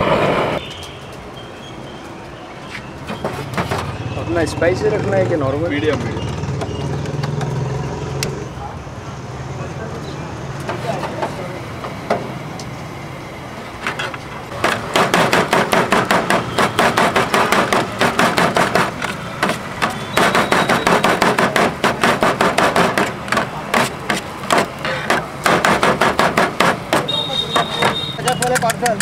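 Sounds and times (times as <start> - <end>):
knife chopping on metal tray: 14.6 - 29.0.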